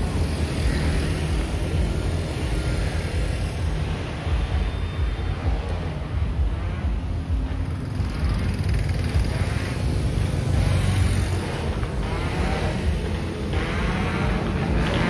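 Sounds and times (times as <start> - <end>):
vehicle engines passing: 0.0 - 15.0.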